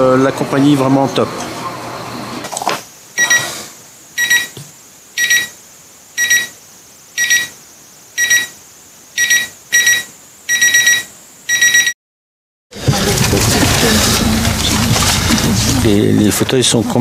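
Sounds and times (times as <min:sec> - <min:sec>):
alarm clock beeping: 0:03.2 - 0:03.5, 0:04.2 - 0:04.6, 0:05.2 - 0:05.6, 0:06.2 - 0:06.6, 0:07.2 - 0:07.6, 0:08.2 - 0:08.6, 0:09.2 - 0:12.0.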